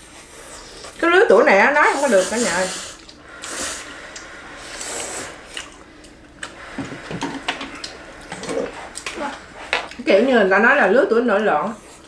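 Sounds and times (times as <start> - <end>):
person slurping noodles: 1.9 - 9.9.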